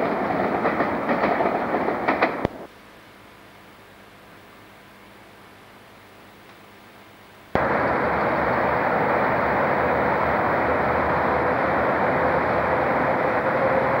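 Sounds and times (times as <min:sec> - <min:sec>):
faint steady whine: 0:02.4 - 0:14.0
locomotive engine running: 0:07.6 - 0:14.0.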